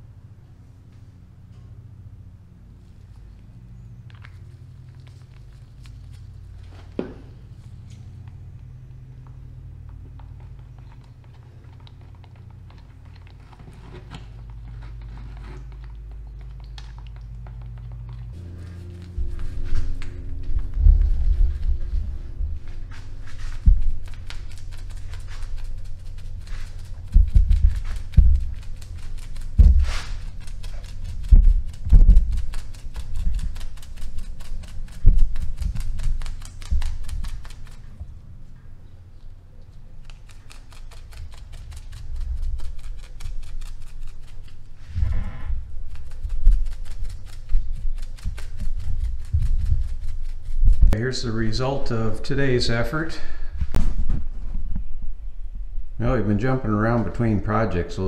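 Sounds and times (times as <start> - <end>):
low hum: 0.0 - 58.0
stir stick scraping plastic cup: 12.0 - 20.2
low thumps: 18.2 - 30.4, 31.1 - 33.6.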